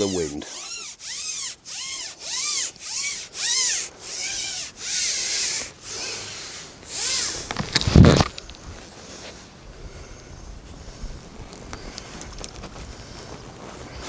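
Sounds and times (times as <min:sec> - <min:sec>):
fishing pole sections sliding: 0:00.0 - 0:09.4.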